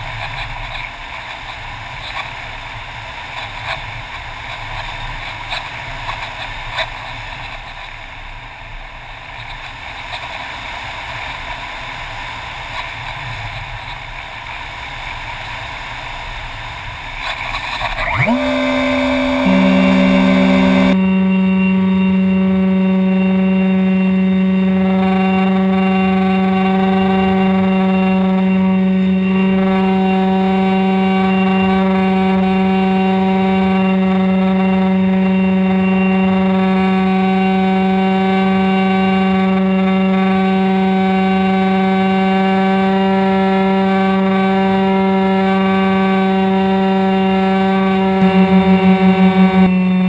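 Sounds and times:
model airplane motor droning: 17.2 - 50.0.

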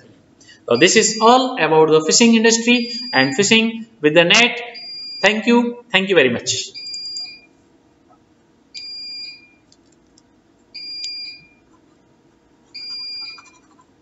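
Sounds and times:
high-pitched electronic beeps: 0.8 - 1.6, 2.6 - 3.4.

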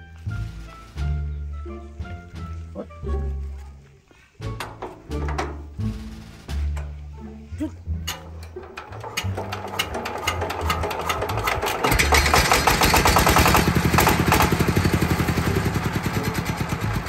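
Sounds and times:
diesel engine hand-cranked and running: 4.4 - 6.1, 8.0 - 17.0.

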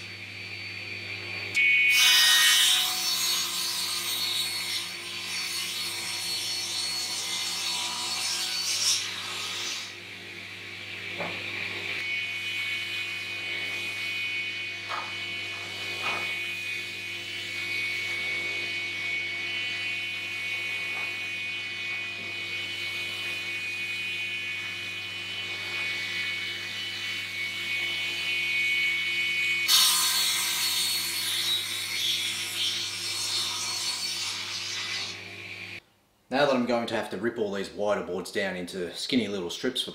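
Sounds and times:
panel saw whining: 1.5 - 35.8
saw blade cutting wood: 11.2 - 35.8.

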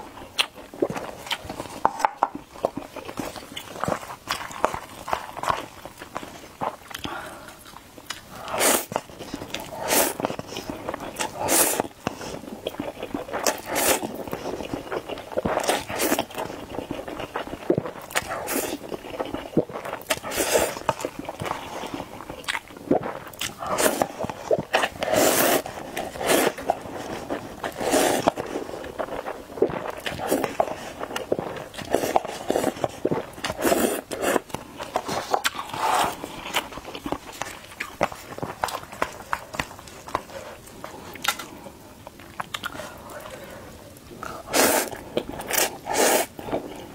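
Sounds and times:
mouth and chewing noises: 0.0 - 46.9
noodles being slurped: 8.4 - 40.5, 44.3 - 46.9
person sipping broth: 19.4 - 36.7, 42.4 - 46.9.

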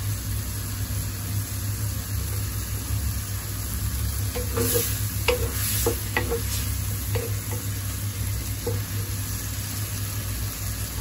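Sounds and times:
greens sizzling in a wok: 0.0 - 11.0
spatula knocking against pan: 4.4 - 7.8.

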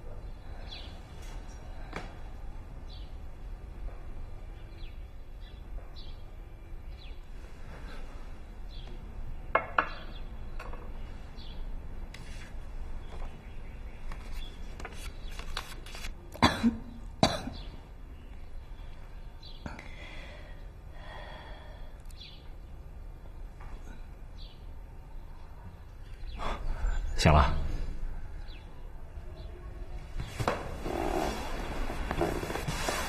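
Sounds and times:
person coughing: 16.4 - 17.6.

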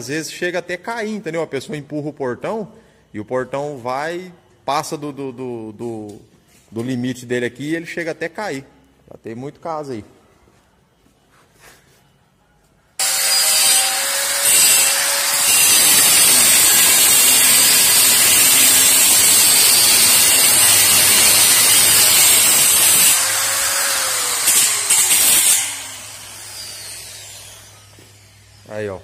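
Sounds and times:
cutting disc cutting steel: 13.0 - 28.9.

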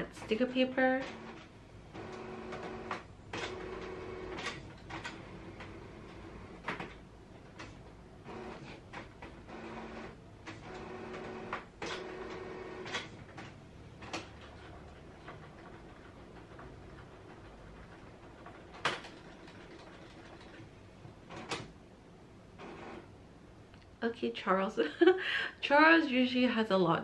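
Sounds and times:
printer motor whirring: 7.5 - 14.2.

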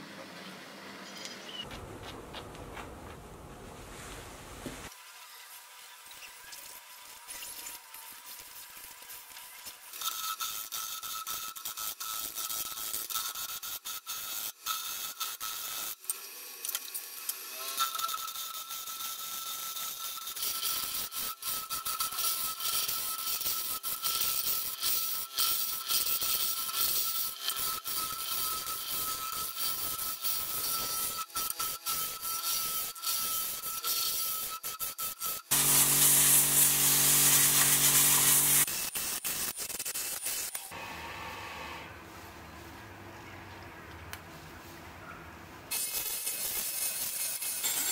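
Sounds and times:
turning tool scraping wood: 17.8 - 40.8
compressed air hiss: 35.5 - 38.6.

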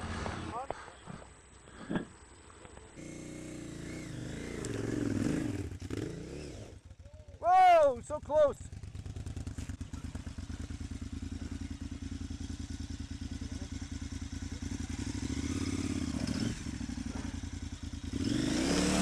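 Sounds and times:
motorcycle engine idling: 3.0 - 18.4.

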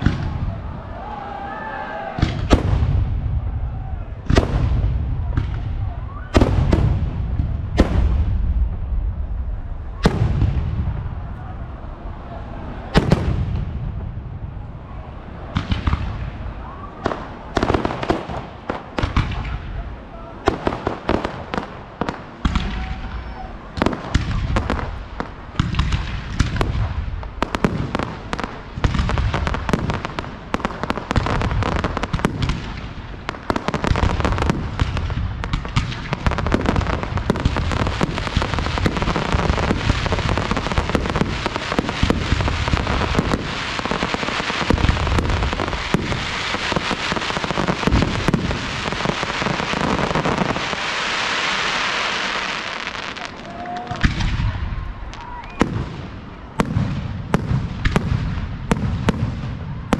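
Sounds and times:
fireworks bangs and thumps: 0.0 - 0.7, 2.2 - 11.5, 12.9 - 14.6, 15.5 - 59.9
steady hiss: 17.2 - 53.6.

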